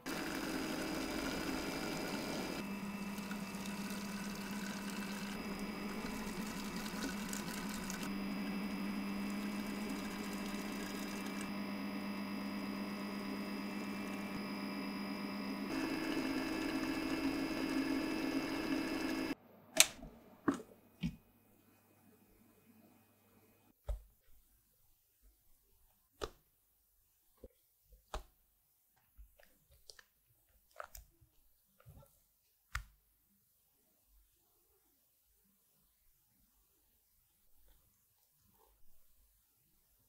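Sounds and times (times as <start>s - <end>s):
electric kitchen mixer running: 0.0s - 19.4s.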